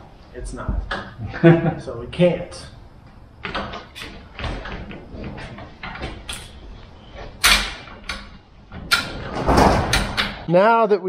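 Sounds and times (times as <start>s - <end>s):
jack clicking and clanking: 2.2s - 10.5s.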